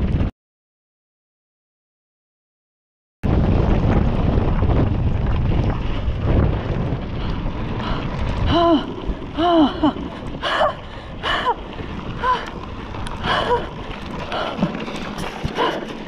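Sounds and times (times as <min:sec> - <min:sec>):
bike tyre rumble on gravel: 0:00.0 - 0:00.3, 0:03.2 - 0:16.0
wind buffeting microphone: 0:03.2 - 0:16.0.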